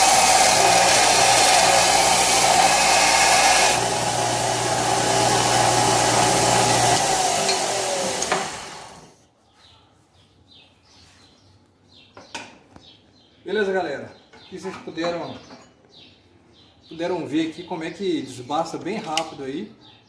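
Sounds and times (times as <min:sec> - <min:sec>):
belt grinder grinding steel: 0:00.0 - 0:09.2
belt winding down: 0:00.0 - 0:09.2.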